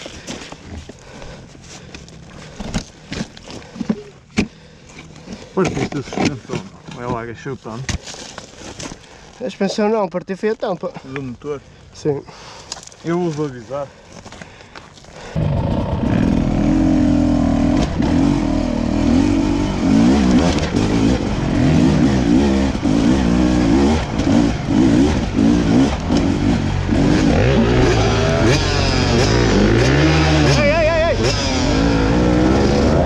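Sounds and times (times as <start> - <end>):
motorcycle engines revving: 15.2 - 33.0.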